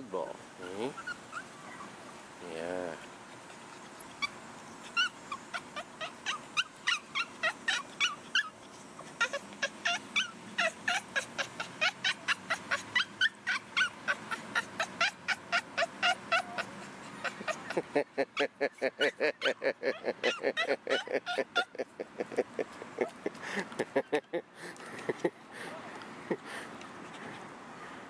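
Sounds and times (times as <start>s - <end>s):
dog yipping and whining: 0.6s - 2.0s, 3.8s - 17.8s, 18.4s - 21.8s.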